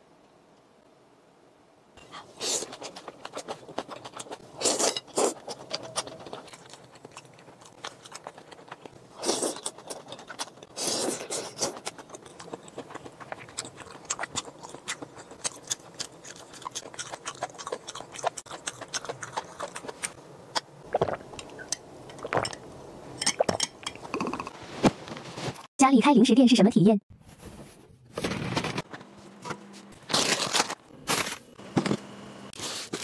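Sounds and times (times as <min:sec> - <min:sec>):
person chewing noodles: 0:02.1 - 0:22.6.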